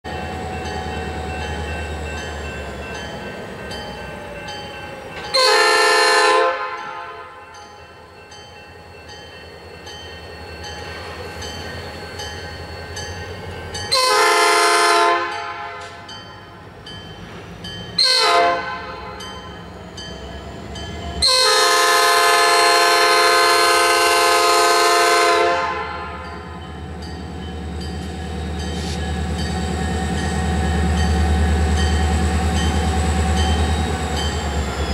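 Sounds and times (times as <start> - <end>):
diesel locomotive rumbling: 0.0 - 34.9
locomotive air horn blasts: 5.3 - 7.4, 13.9 - 16.1, 18.0 - 19.2, 21.2 - 26.3.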